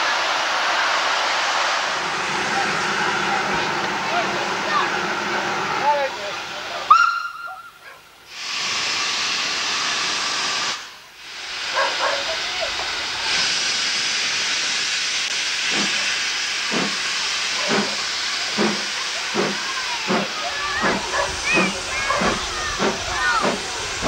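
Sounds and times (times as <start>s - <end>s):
steam locomotive hissing: 0.0s - 24.0s
short steam pulses: 8.3s - 24.0s.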